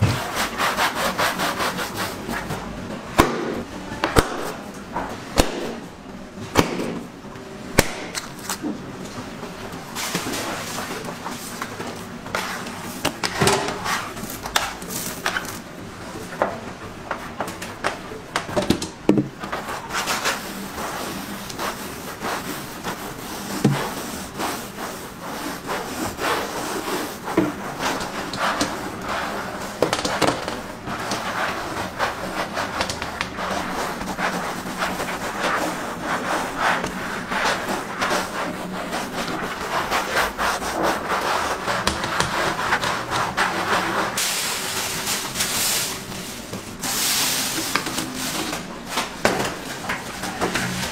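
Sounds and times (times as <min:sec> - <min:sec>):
dough rubbing and scraping in tray: 0:00.0 - 0:02.6, 0:12.3 - 0:15.6, 0:19.4 - 0:50.9
dough knocks and thumps: 0:27.3 - 0:35.3.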